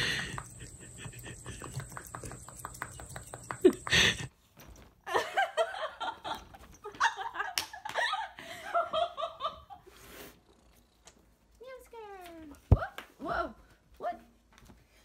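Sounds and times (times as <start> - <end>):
person laughing: 0.0 - 2.1, 3.6 - 4.3.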